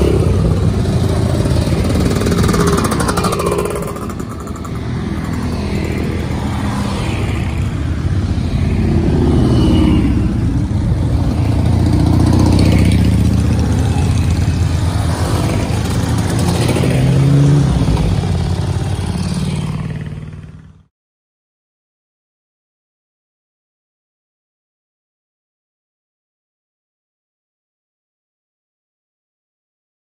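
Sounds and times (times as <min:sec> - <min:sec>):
motorcycles riding past: 0:00.0 - 0:20.9.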